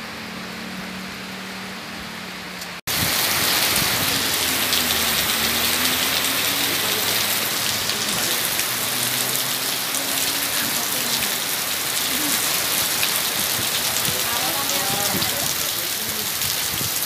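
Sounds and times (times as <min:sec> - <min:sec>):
heavy rain on paving: 0:00.0 - 0:17.0.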